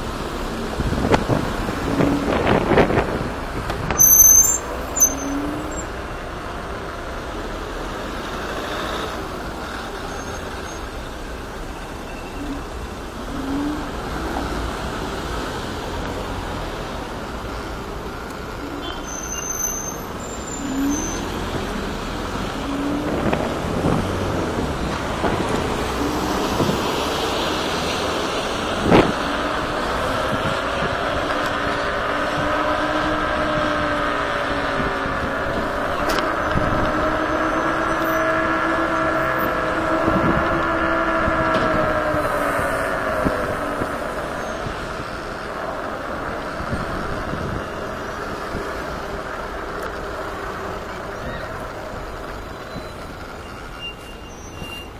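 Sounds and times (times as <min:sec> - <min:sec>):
road traffic passing: 0:00.0 - 0:54.9.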